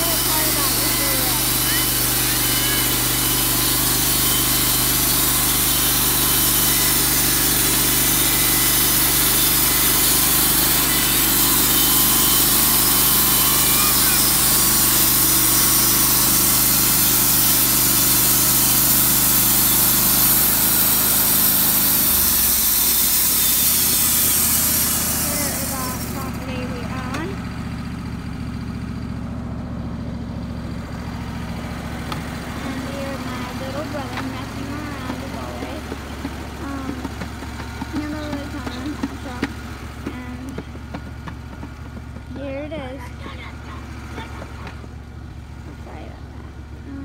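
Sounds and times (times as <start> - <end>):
band blade cutting log: 0.0 - 26.4, 31.9 - 42.9
sawmill engine running: 0.0 - 47.0.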